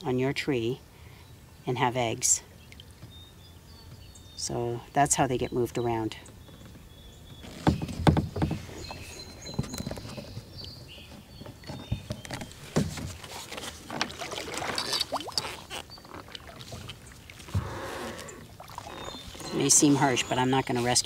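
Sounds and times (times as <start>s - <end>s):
kayak knocks: 6.3s - 19.7s
paddle splashing in water: 6.7s - 21.0s.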